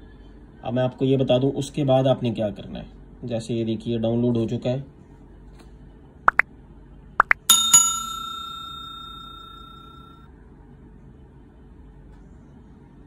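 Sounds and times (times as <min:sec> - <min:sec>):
quick rising blips: 0:07.2 - 0:07.5
bell ringing: 0:07.3 - 0:10.2.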